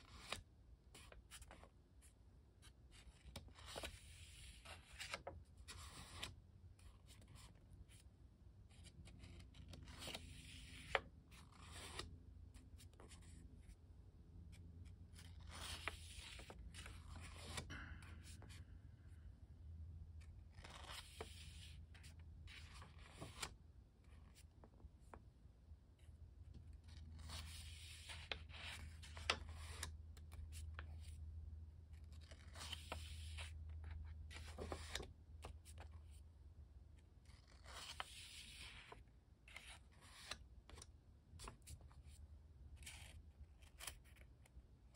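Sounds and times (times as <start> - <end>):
paper pages rustling: 3.2 - 6.3, 15.1 - 18.6.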